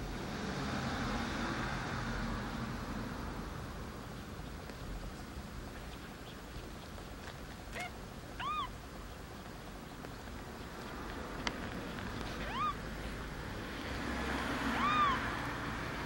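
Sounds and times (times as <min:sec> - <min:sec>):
kitten mewing: 0:07.7 - 0:08.8, 0:12.3 - 0:12.8, 0:14.6 - 0:15.5.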